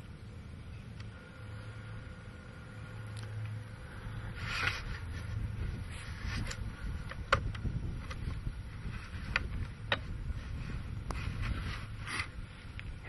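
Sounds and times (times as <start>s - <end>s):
wind rumbling on microphone: 3.7s - 13.0s
soft rustles: 8.2s - 13.0s.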